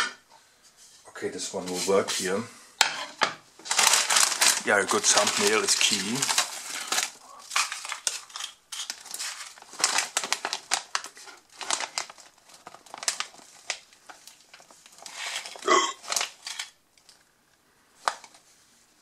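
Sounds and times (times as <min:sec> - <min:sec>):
plastic chip bag crinkling: 0:03.6 - 0:17.3, 0:18.0 - 0:18.5.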